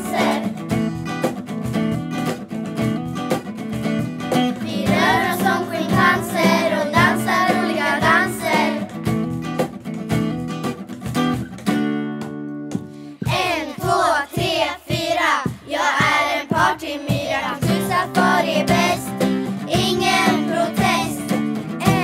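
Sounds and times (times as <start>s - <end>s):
children singing: 0.0s - 0.6s, 4.6s - 9.0s, 13.2s - 22.0s
acoustic guitar strumming: 0.0s - 14.0s, 16.5s - 22.0s.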